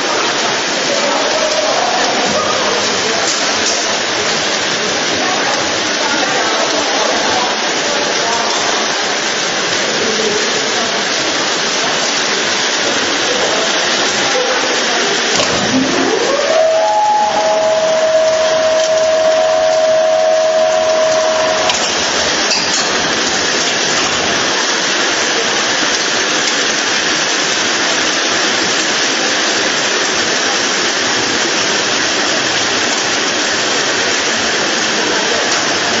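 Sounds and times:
frying equipment hiss: 0:00.0 - 0:36.0
motor whine: 0:15.4 - 0:22.5.

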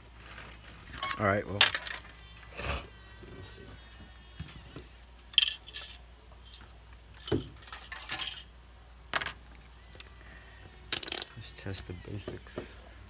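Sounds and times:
small hard objects clicking: 0:10.9 - 0:11.3.

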